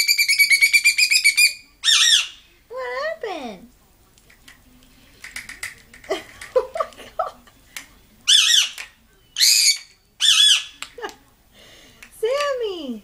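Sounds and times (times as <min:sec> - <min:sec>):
bird harsh squawks: 0:00.0 - 0:02.4, 0:08.3 - 0:08.8, 0:09.4 - 0:10.8.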